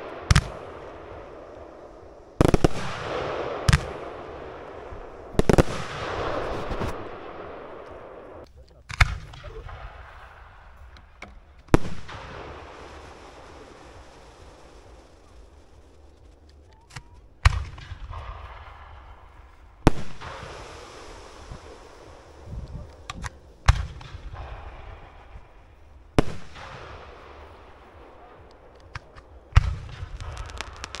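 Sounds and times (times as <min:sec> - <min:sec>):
fireworks banging: 0:00.0 - 0:31.0.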